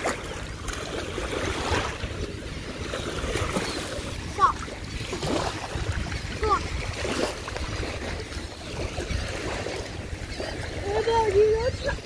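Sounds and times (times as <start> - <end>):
surf washing and splashing: 0.0 - 12.0
wind noise on microphone: 4.7 - 12.0.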